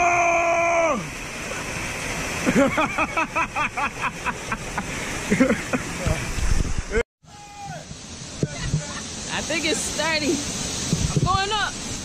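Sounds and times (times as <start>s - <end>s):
person's long held cry: 0.0s - 1.1s
waterfall rushing: 0.0s - 12.0s.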